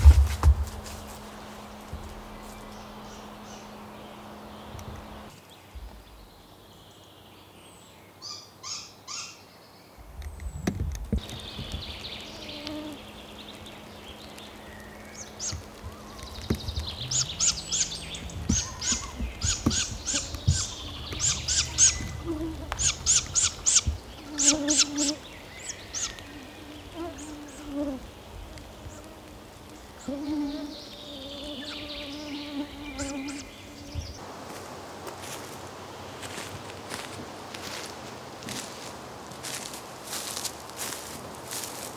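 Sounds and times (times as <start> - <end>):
owl fledglings calling: 8.2 - 9.4, 11.2 - 27.9, 29.9 - 34.2.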